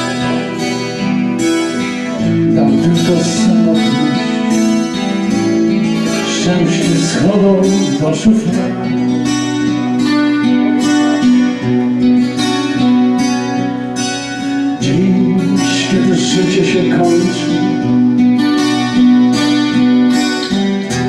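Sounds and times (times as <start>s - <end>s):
acoustic guitars: 0.0s - 21.0s
man singing slowly: 2.2s - 4.8s, 6.1s - 9.0s, 14.8s - 18.0s.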